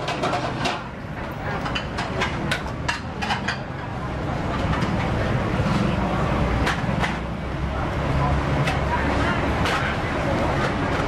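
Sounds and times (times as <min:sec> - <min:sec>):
ladles clinking on metal pots: 0:00.0 - 0:05.9
low traffic rumble: 0:00.0 - 0:11.0.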